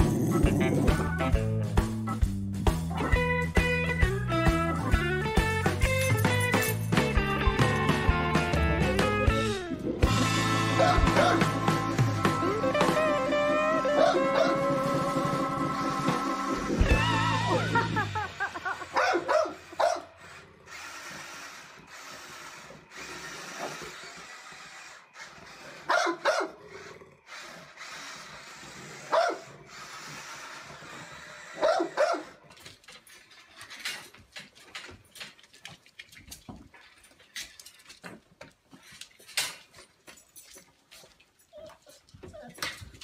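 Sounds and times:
dog barking: 10.8 - 11.6, 13.9 - 14.6, 18.9 - 20.1, 25.9 - 26.6, 29.1 - 29.5, 31.6 - 32.4.

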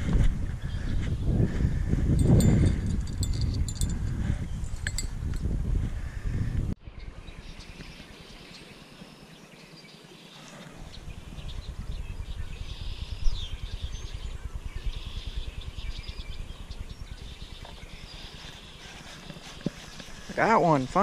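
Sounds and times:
low rumbling microphone noise: 0.0 - 8.5, 10.6 - 21.0
small birds chirping: 6.9 - 21.0.

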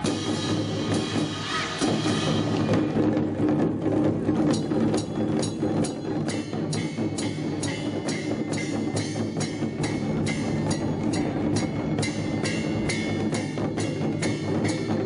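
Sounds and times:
drum strokes: 0.0 - 15.0
ringing gong: 4.6 - 15.0.

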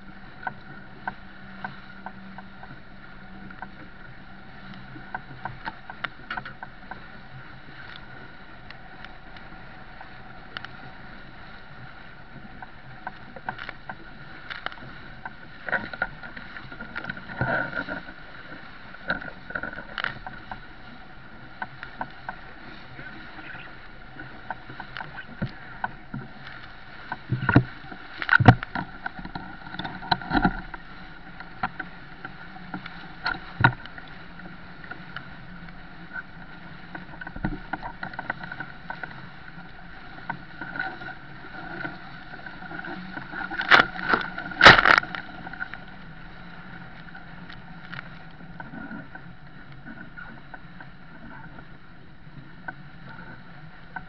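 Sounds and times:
water and wind rushing along hull: 0.0 - 54.0
waves slamming against bow: 40.1 - 45.7.

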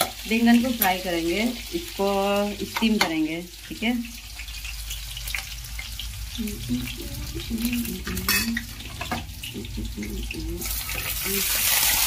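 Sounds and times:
oil sizzling in a pan: 0.0 - 12.0
metal spatula clinking: 8.1 - 9.2.

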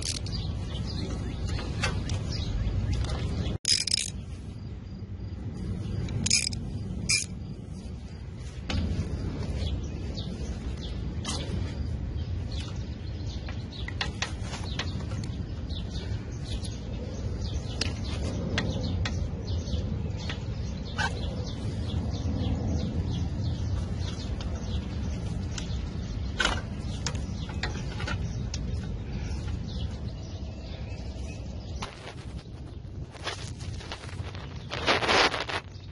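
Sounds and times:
bird chirps: 0.0 - 35.9
low rumble: 0.3 - 13.7.

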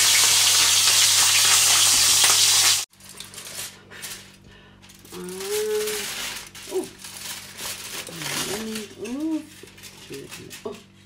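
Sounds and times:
fish sizzling in frying pan: 0.0 - 2.9.

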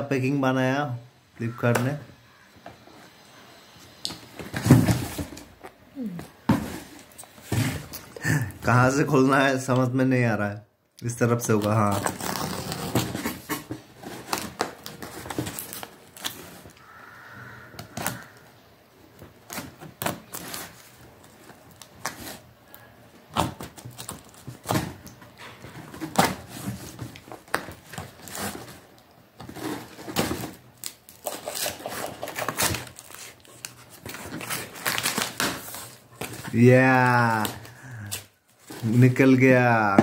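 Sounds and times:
scissors cutting packing tape: 30.8 - 36.0.

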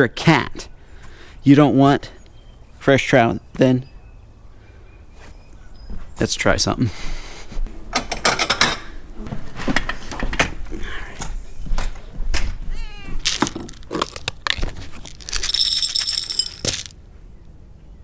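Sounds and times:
cat meowing: 12.6 - 13.3.

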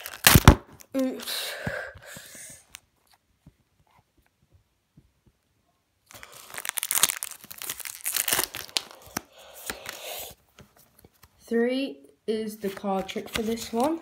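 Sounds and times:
foil wrapper tearing and crinkling: 0.0 - 0.9, 6.1 - 10.0.

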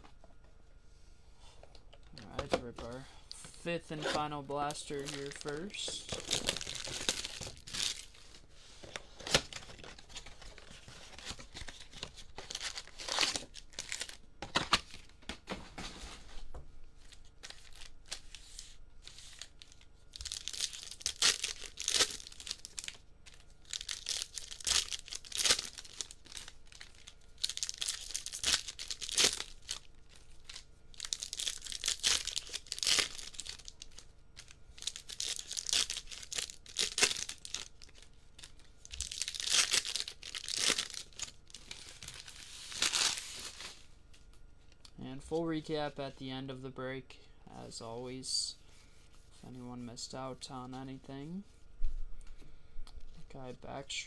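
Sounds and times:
foil wrappers tearing and crinkling: 3.9 - 15.1, 17.0 - 43.8.

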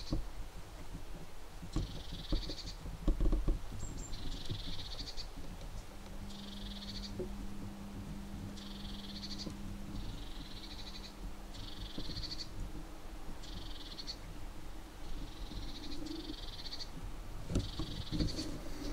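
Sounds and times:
faint low hum: 0.0 - 18.9
animal high-pitched rasping call: 6.2 - 12.6.

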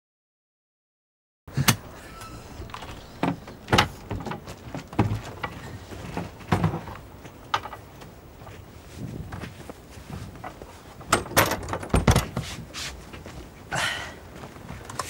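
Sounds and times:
folding chair knocks and clanks: 1.6 - 13.4.

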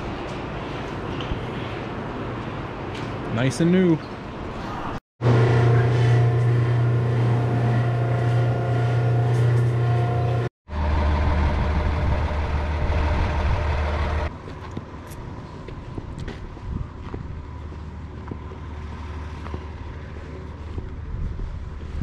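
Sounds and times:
diesel truck engine running: 5.2 - 14.3
loud machine hum: 5.2 - 14.3.

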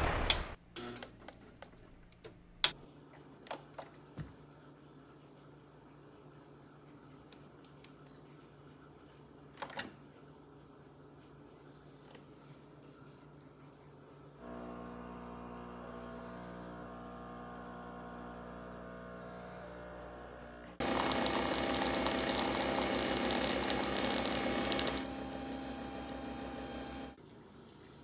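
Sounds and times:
coffee machine hum: 14.4 - 27.2
coffee machine whirring: 14.4 - 27.2.

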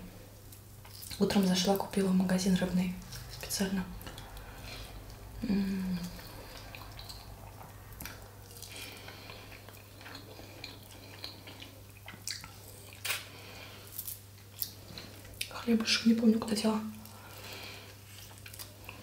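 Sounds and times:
low electrical hum: 0.0 - 19.0
person humming: 5.4 - 6.2.

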